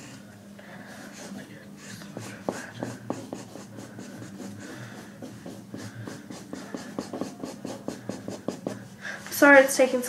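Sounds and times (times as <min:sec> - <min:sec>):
marker scribbling on paper towel: 0:00.9 - 0:08.9.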